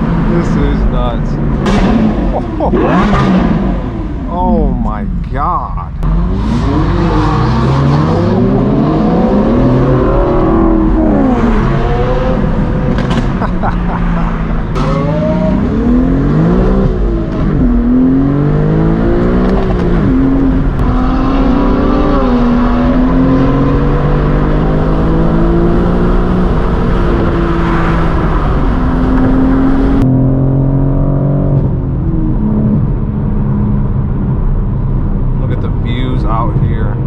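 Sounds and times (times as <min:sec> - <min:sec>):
car engines accelerating hard: 0:00.0 - 0:37.0.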